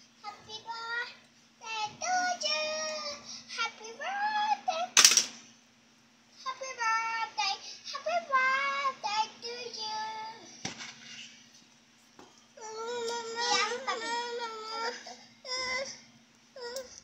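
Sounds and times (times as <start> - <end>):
girl singing: 0.2 - 5.0, 6.4 - 10.6, 12.6 - 16.0.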